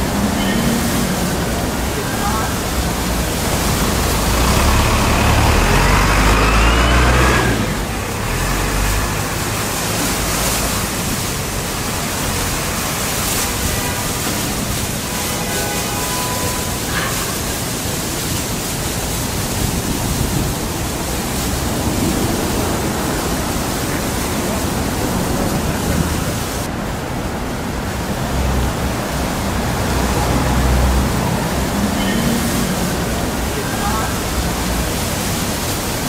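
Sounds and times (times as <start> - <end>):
rushing air noise: 0.0 - 36.0.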